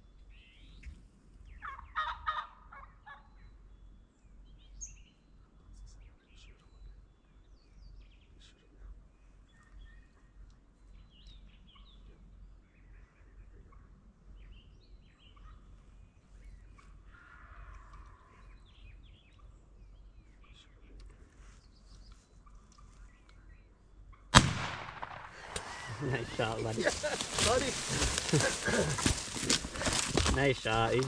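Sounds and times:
songbirds chirping: 0.0s - 31.0s
turkey gobbling: 1.6s - 3.3s, 25.0s - 31.0s.

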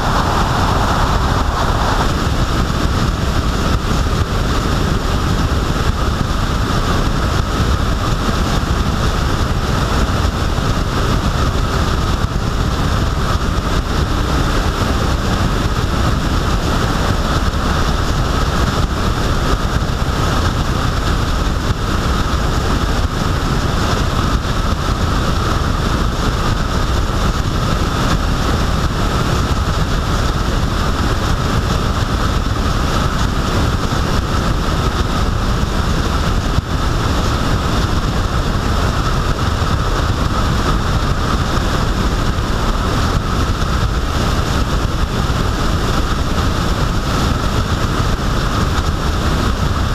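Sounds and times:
engine and tyre noise: 0.0s - 49.9s
wind rushing over microphone: 0.0s - 49.9s.

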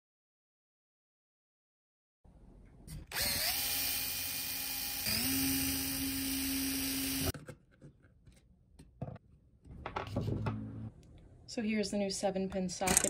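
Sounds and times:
electric drill motor: 3.1s - 7.3s.

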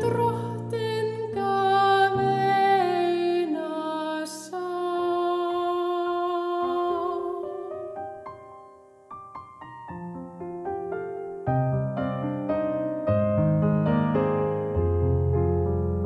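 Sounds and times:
soprano singing: 0.0s - 8.6s
piano playing: 0.0s - 16.0s.

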